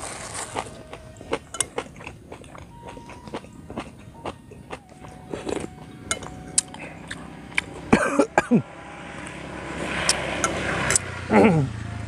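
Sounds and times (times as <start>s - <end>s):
man eating with a spoon: 0.0s - 8.4s
chewing and mouth clicks: 0.3s - 7.9s
man coughing: 7.9s - 8.6s.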